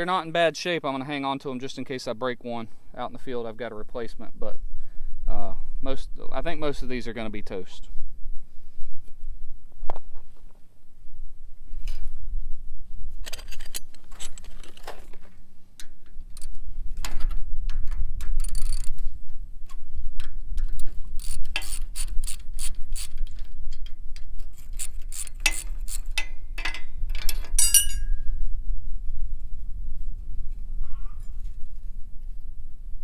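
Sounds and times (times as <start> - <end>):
metal parts clinking: 13.2 - 15.1, 21.2 - 28.1
ratchet wrench clicking: 18.4 - 18.9, 21.2 - 23.2, 24.6 - 26.3.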